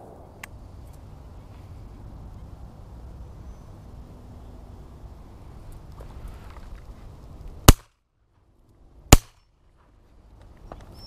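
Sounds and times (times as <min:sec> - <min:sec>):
shotgun shots: 0:07.7 - 0:07.9, 0:09.1 - 0:09.4.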